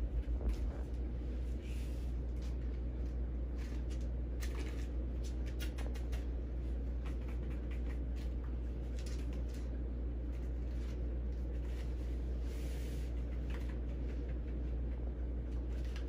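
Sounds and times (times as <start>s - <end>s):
steady low hum: 0.0s - 16.0s
puppy rustling paper ball: 0.1s - 16.0s.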